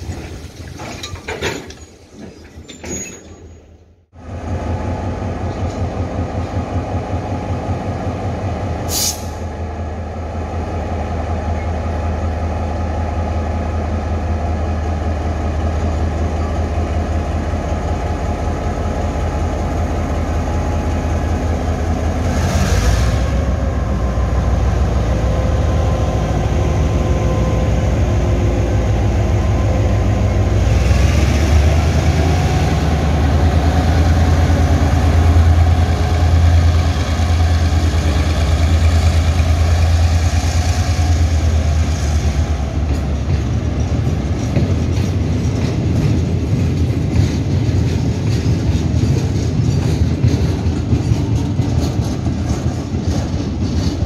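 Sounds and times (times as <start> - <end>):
diesel locomotive engine drone: 3.4 - 54.0.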